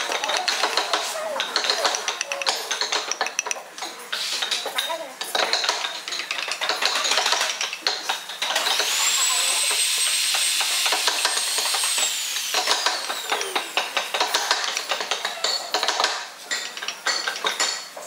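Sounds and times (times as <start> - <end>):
carving tools on hardwood: 0.0 - 18.0
small power tool whining: 8.6 - 15.9.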